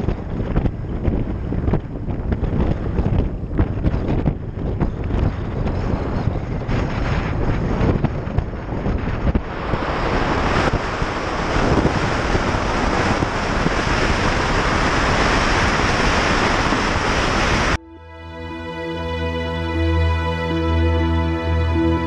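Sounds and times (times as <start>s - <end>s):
wind buffeting microphone: 0.0s - 17.8s
music: 17.8s - 22.0s.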